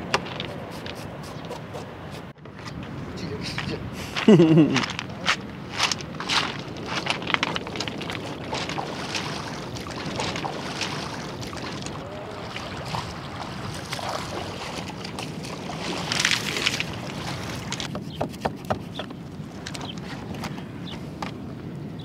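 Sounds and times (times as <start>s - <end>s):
wind: 0.0s - 22.0s
water rushing: 7.6s - 17.9s
fish splashing in river water: 7.7s - 17.7s.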